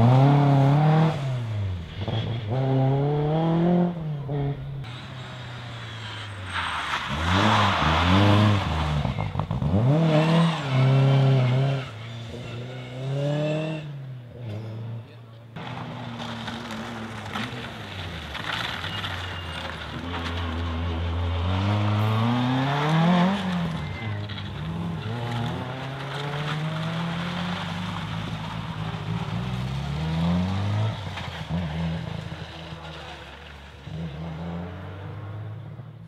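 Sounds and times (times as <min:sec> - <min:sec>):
rally car engine revving: 0:00.0 - 0:36.0.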